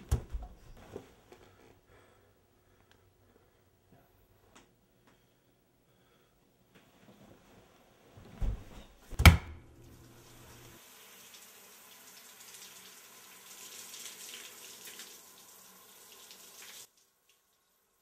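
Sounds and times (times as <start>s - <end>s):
tap water running: 9.2s - 18.0s.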